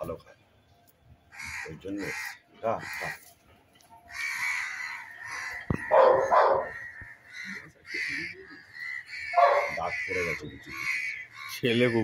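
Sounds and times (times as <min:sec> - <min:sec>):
harsh animal calls: 0:04.1 - 0:12.0.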